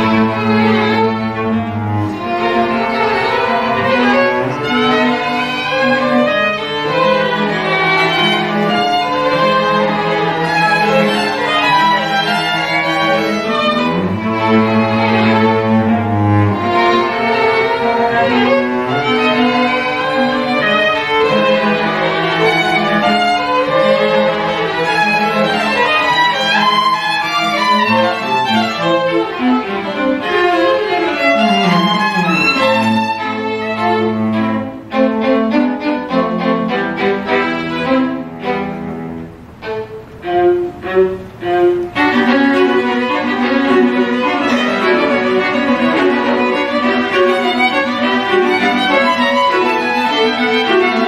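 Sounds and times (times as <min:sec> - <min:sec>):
string quartet playing: 0:00.0 - 0:51.0.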